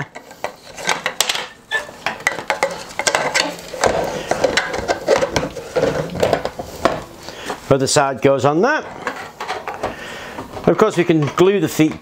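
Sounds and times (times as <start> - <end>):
plastic parts clicking and knocking: 0.0 - 7.1, 9.0 - 12.0
scraping and rubbing: 0.0 - 7.5, 8.7 - 11.5.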